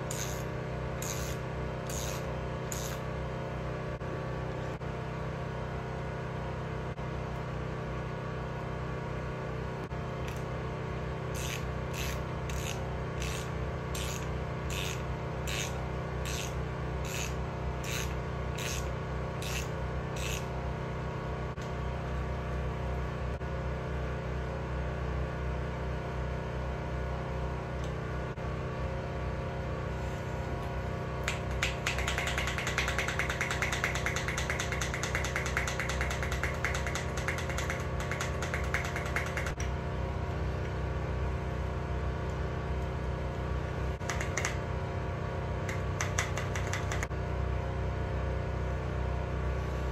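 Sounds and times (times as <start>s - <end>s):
steady low hum: 0.0s - 49.9s
fast clicking: 31.3s - 39.7s, 44.0s - 44.6s, 45.7s - 47.1s.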